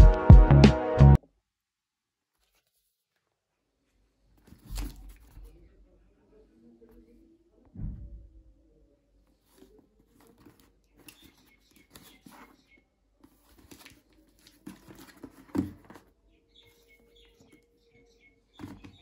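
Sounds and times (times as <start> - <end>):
taped cardboard box rustling: 13.3 - 16.1
box thump: 14.8 - 16.0.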